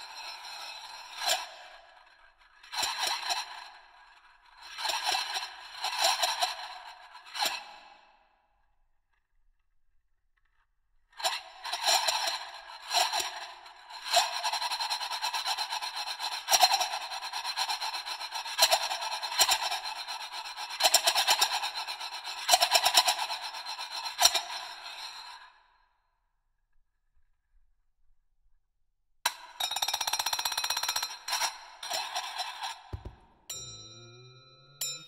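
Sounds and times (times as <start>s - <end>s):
singing bowls ringing: 33.5s - 35.0s.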